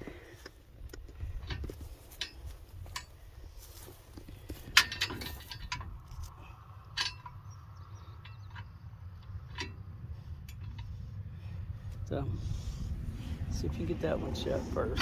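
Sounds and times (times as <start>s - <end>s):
metal clinks and knocks: 0.9s - 11.0s
low rumble: 1.1s - 15.0s.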